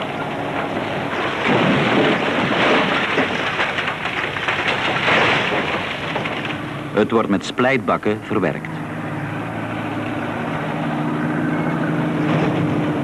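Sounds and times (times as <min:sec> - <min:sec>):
gravel being tipped out: 0:00.0 - 0:07.2.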